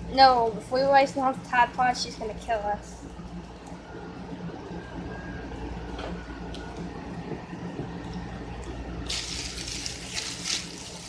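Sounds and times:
steady low hum: 0.0s - 11.0s
plastic bag rustling: 9.1s - 11.0s.

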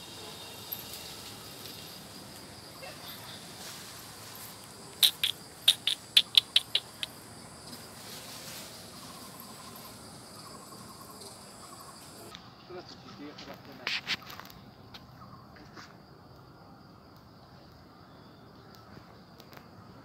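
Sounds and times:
high-pitched insect chorus: 0.0s - 20.0s
loud sharp chirps: 5.0s - 7.2s.

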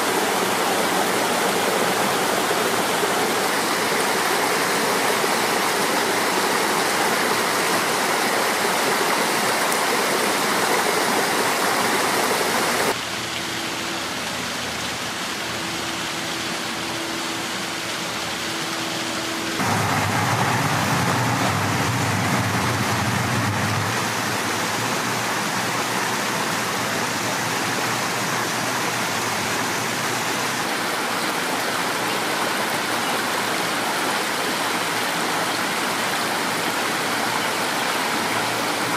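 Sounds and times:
water rushing over rocks: 0.0s - 13.2s, 14.1s - 38.9s
low rumble: 19.6s - 24.7s.

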